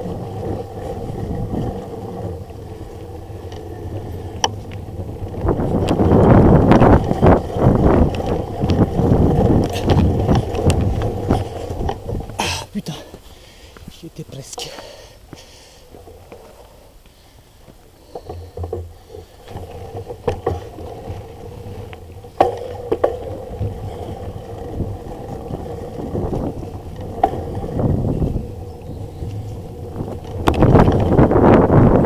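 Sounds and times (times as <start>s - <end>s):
wind rushing on microphone: 0.0s - 12.4s, 19.6s - 32.0s
bike knocking and rattling: 0.0s - 32.0s
bike tyres rumbling on dirt: 0.0s - 32.0s.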